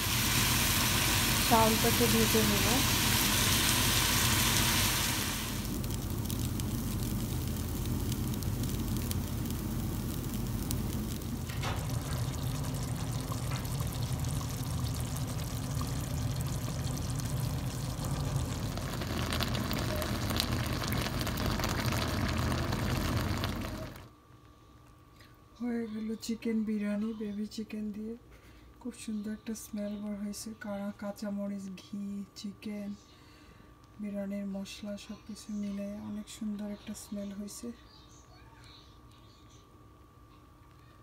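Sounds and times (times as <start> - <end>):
food bubbling: 0.0 - 24.1
rice sizzling in a pot: 0.0 - 24.1.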